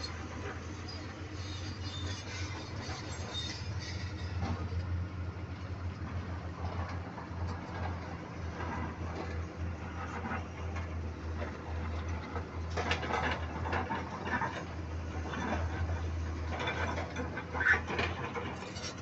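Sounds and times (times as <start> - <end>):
excavator bucket clattering and scraping: 0.0 - 5.1, 6.0 - 19.0
diesel engine running: 0.0 - 19.0.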